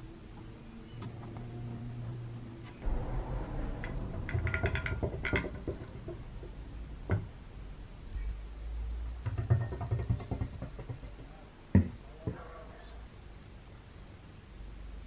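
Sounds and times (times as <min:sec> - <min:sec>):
metal clicks and rattles: 0:03.7 - 0:07.3.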